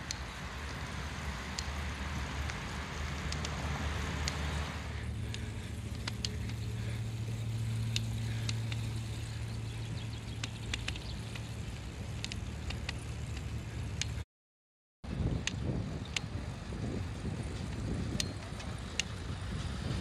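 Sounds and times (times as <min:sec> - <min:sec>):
bicycle rolling over paving stones: 0:00.0 - 0:14.2, 0:15.1 - 0:20.0
low engine hum: 0:00.0 - 0:14.2, 0:15.1 - 0:20.0
wind on microphone: 0:15.0 - 0:20.0.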